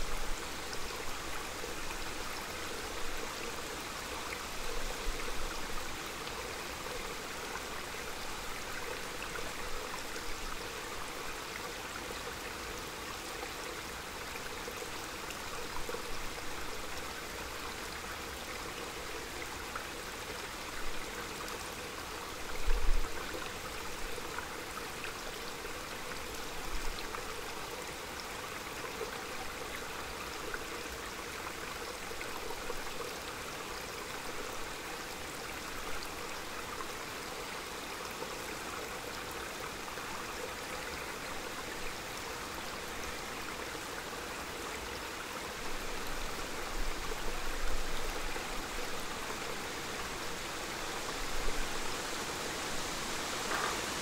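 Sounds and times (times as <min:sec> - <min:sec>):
stream running over stones: 0:00.0 - 0:54.0
low gusts of wind: 0:45.0 - 0:54.0.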